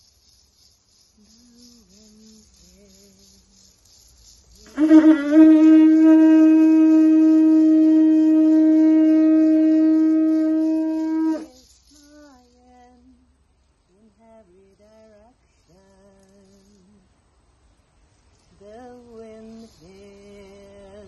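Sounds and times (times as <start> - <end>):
faint humming: 0.0 - 21.0
conch shell trumpet note: 4.7 - 11.5.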